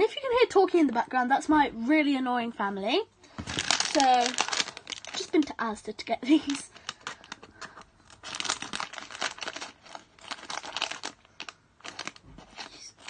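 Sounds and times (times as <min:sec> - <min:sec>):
plastic packet crinkling: 0:03.3 - 0:13.0.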